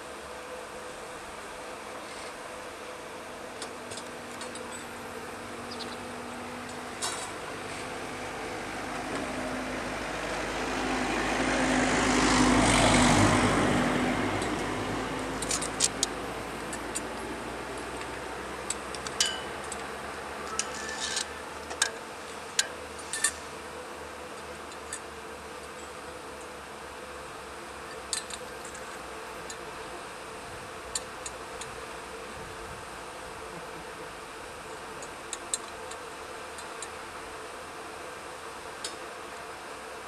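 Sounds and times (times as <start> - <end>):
road vehicle passing: 4.2 - 21.6
sharp metallic clinks and taps: 18.7 - 19.9.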